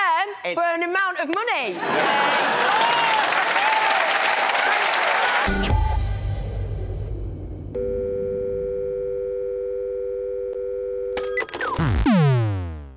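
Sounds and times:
quick electronic clicks and beeps: 11.2s - 12.3s.

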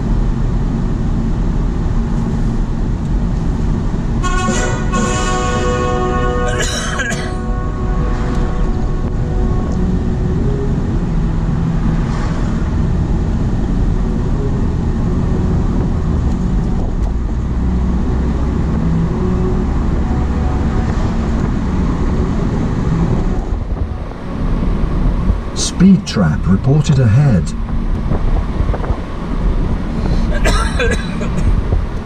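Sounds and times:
car cabin road rumble: 0.0s - 32.0s.

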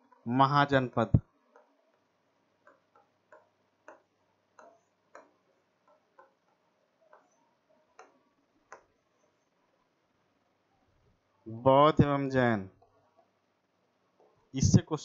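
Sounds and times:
pen tapping on touchscreen: 1.1s - 9.5s.

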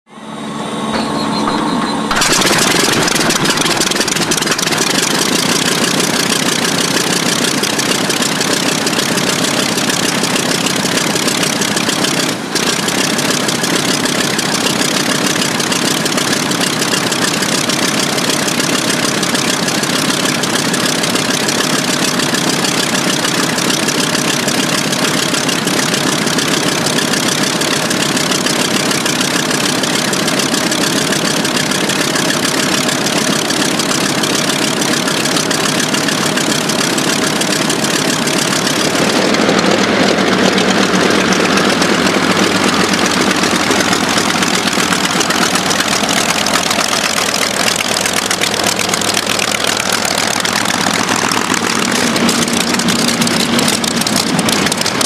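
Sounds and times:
radial aircraft engine running: 0.0s - 55.0s.

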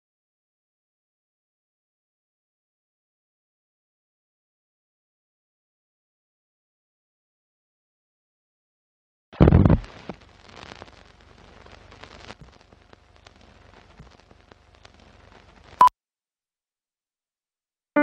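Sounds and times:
loud low thump: 9.4s - 9.9s.

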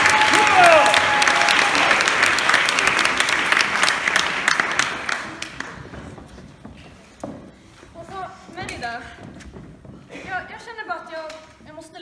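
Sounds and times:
audience applause: 0.0s - 6.2s.

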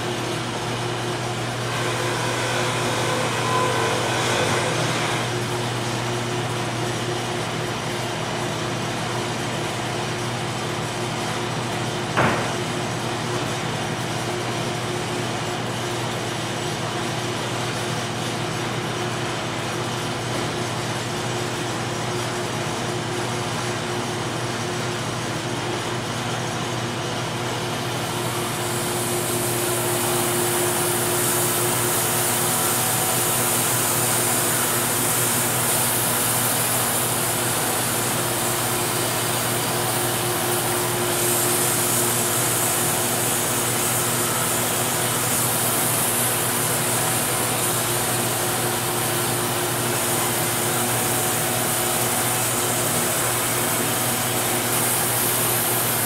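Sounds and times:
band sawmill cutting log: 0.0s - 23.7s, 25.0s - 56.0s
machinery hum: 25.8s - 56.0s.

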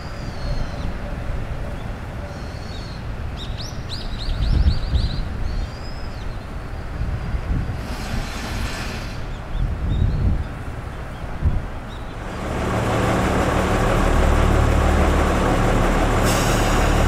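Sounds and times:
songbirds chirping: 0.0s - 7.4s, 9.1s - 13.2s
wind rumble on microphone: 3.0s - 13.9s
broad hiss: 7.6s - 9.5s.

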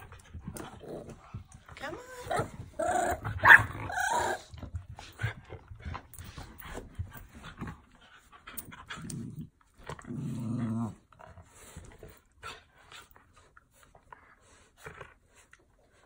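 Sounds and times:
dogs growling: 0.0s - 6.1s, 8.6s - 12.6s
dogs panting: 4.4s - 9.1s, 11.2s - 16.0s.

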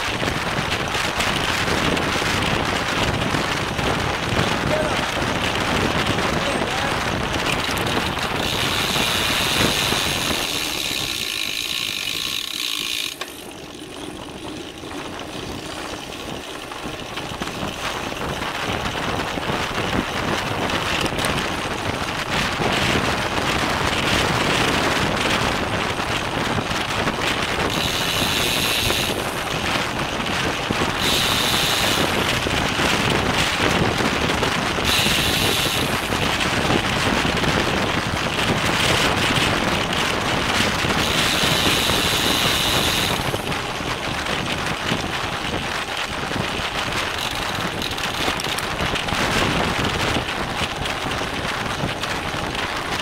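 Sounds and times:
bicycle freewheel ticking: 0.0s - 53.0s
road noise: 0.0s - 53.0s
wind noise: 0.0s - 53.0s.

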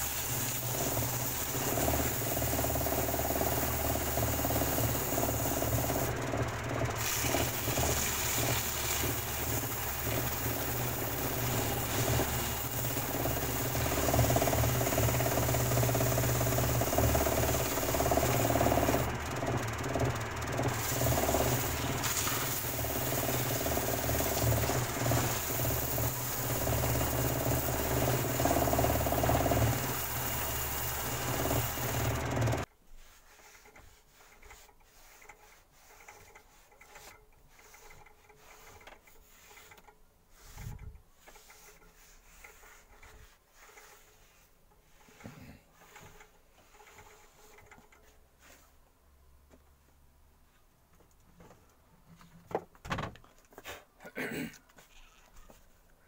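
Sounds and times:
woodworking machine cutting wood: 0.0s - 32.6s.

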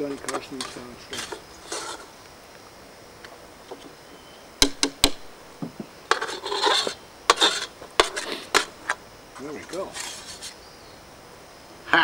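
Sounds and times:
cutlery scraping on dishes: 0.3s - 2.1s, 6.1s - 9.0s, 9.9s - 10.6s.

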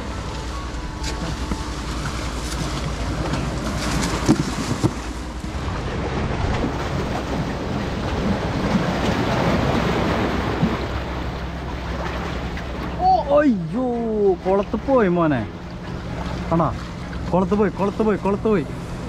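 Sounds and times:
sea waves splashing on concrete: 1.0s - 13.8s.

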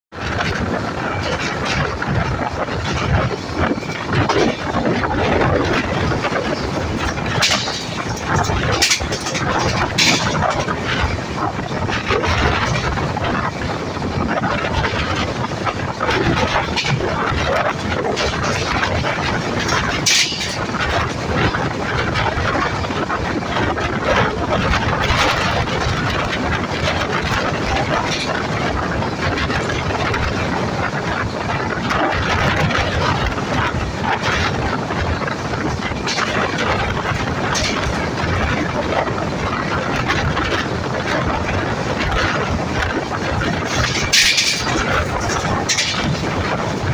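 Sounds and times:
train wheels rushing on rails: 0.1s - 46.9s
wind on microphone: 0.1s - 46.9s
sharp rail clacks: 0.2s - 46.9s
rattling clicks from track: 0.3s - 14.0s, 14.6s - 22.9s, 32.7s - 38.2s, 42.6s - 46.8s.

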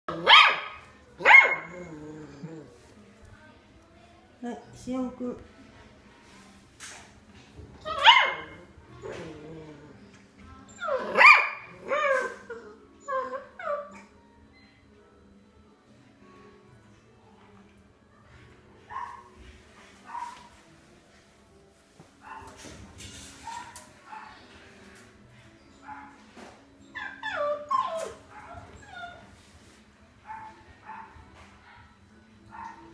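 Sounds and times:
puppy yapping: 0.1s - 1.8s, 7.8s - 9.2s
puppy whimpering: 10.6s - 11.2s, 11.8s - 14.2s, 26.9s - 29.3s
puppy whining and yelping: 10.7s - 14.2s, 26.9s - 29.3s.

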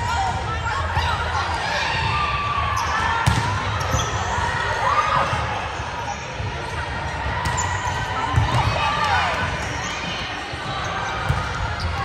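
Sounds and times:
shoes squeaking on court floor: 9.6s - 12.0s.

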